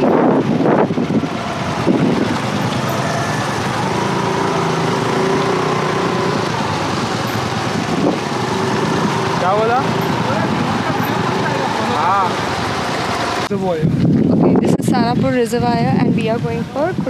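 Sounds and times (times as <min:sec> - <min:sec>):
motor scooter engine running: 0:00.0 - 0:13.5
wind and road noise: 0:00.0 - 0:17.0.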